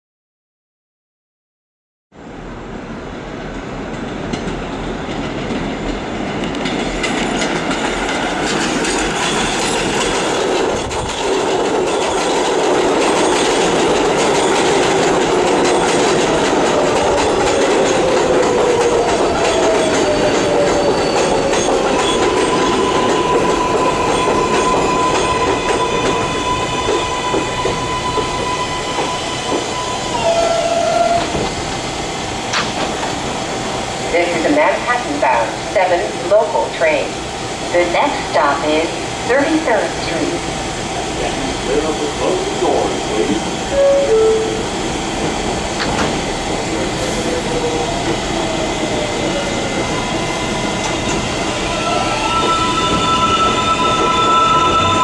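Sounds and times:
subway train wheel and rail noise: 2.2s - 55.0s
train brakes whining: 13.1s - 33.4s, 41.7s - 55.0s.

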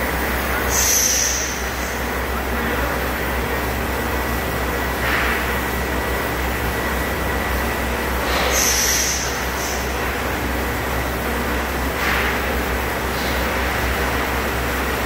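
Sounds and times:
hydraulic hiss: 0.6s - 2.1s, 8.2s - 10.2s.

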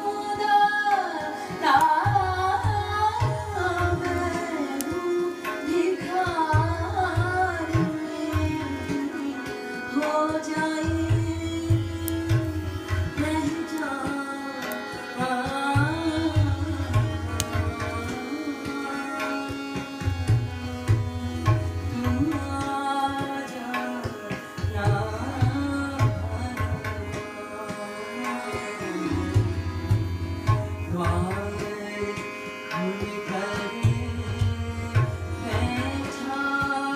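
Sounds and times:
person singing: 0.0s - 36.9s
tabla: 0.0s - 36.9s.

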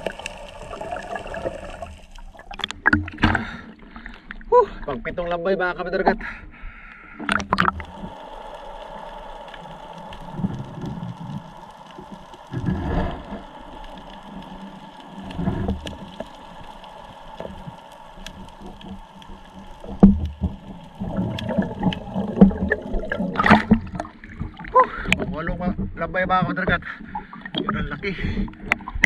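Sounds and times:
sea water sloshing: 0.0s - 5.0s, 6.6s - 29.0s
low surges of water: 0.0s - 29.0s
faint hiss: 6.2s - 25.3s.

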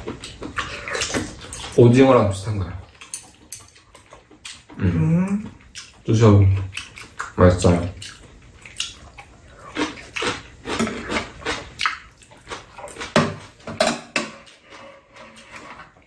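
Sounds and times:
chewing and slurping: 0.0s - 2.0s, 2.8s - 13.6s, 14.3s - 16.0s
utensils clicking against bowls: 0.9s - 2.0s, 3.0s - 4.2s.

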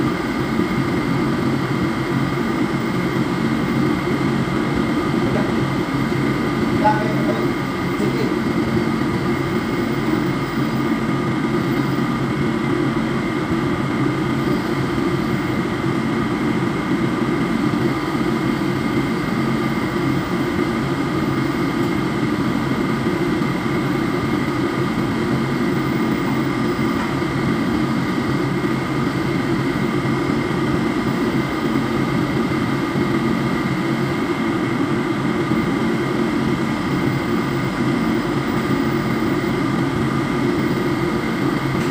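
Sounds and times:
ship machinery drone: 0.0s - 41.9s
steady high whine: 0.0s - 41.9s.

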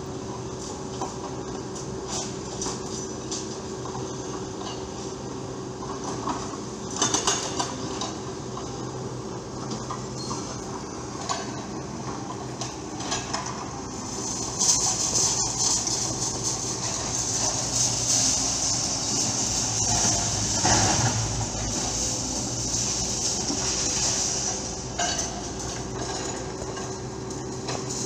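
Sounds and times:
excavator diesel engines running: 0.0s - 28.0s
metallic clanks and knocks: 11.2s - 28.0s.

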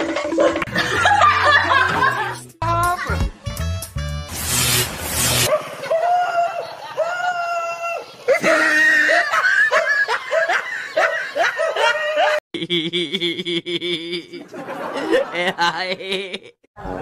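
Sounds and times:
high-pitched shrieking laughter: 5.5s - 12.4s.

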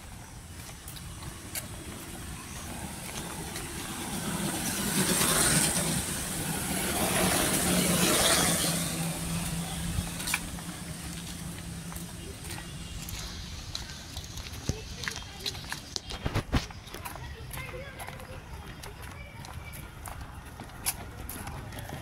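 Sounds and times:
motorbike passing: 0.0s - 16.0s.

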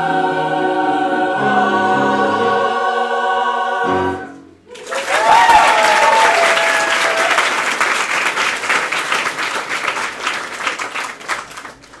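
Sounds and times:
audience applauding: 4.7s - 12.0s.

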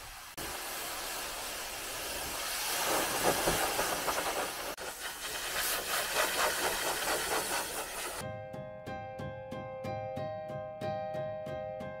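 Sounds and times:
pressure washer spraying car: 0.0s - 8.2s.

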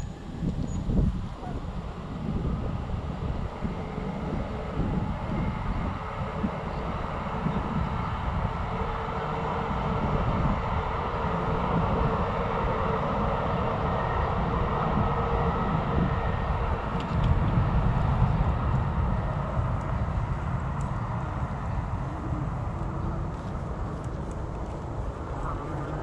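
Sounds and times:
wind noise on microphone: 0.0s - 26.0s
bicycle tyre rumble: 16.8s - 26.0s.

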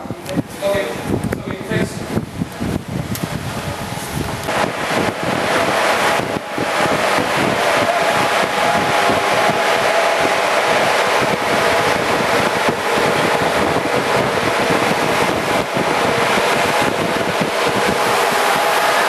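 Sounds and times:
engine room machinery running: 0.0s - 19.0s.

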